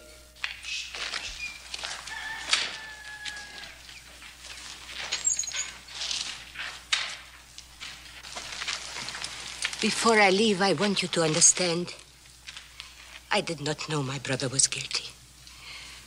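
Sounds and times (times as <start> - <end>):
horses scuffing and rustling: 0.4 - 13.2.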